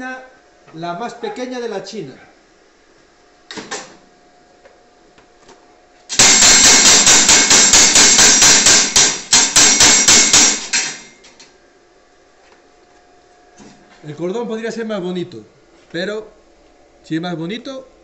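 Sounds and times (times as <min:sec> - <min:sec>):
hammer blows on steel sheet: 0:06.1 - 0:11.0
metal clatter: 0:06.1 - 0:11.2.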